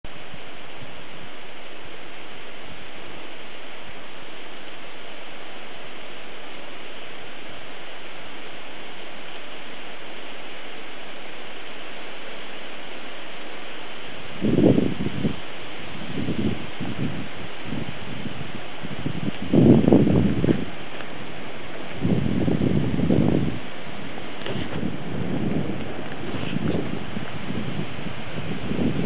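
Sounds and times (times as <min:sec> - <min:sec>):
steady hiss: 0:00.1 - 0:29.0
loud rustling: 0:17.6 - 0:29.0.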